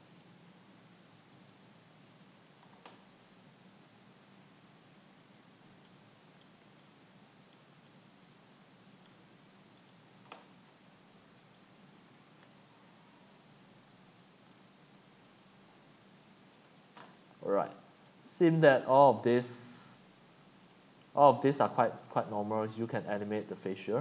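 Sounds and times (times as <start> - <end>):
faint steady hiss: 0.0 - 24.0
keyboard and mouse clicks: 1.4 - 3.5, 5.2 - 6.9, 9.0 - 10.5, 14.4 - 14.7, 16.0 - 17.2, 20.6 - 21.1.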